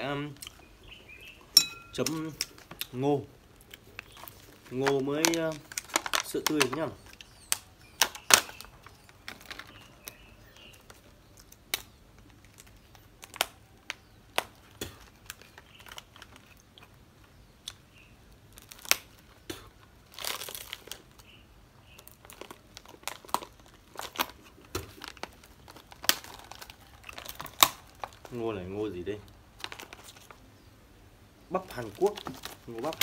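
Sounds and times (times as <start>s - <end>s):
plastic packaging crinkling: 3.5s - 17.0s, 18.5s - 30.5s, 31.5s - 33.0s
tearing rustle: 20.0s - 21.3s, 31.6s - 33.0s.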